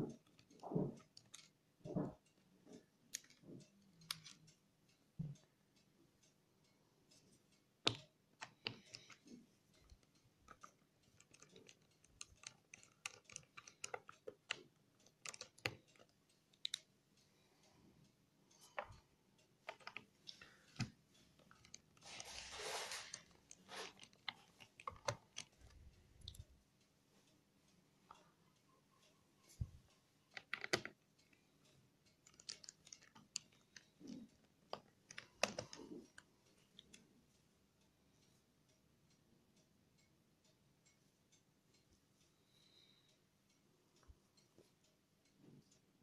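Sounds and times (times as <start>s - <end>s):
rustling scrape: 22.0s - 24.1s.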